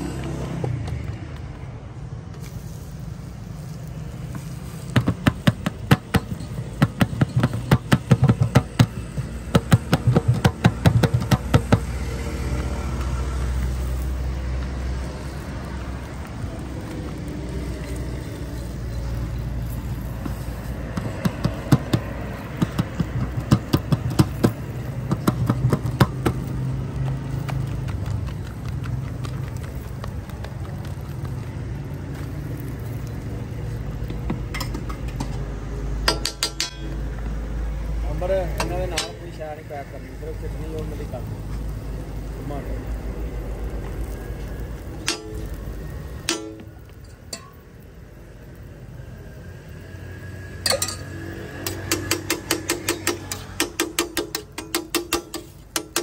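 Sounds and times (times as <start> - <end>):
tapping and slapping on iron griddle: 3.6 - 15.4, 18.6 - 37.0, 38.4 - 39.4, 43.9 - 47.8, 50.7 - 56.0.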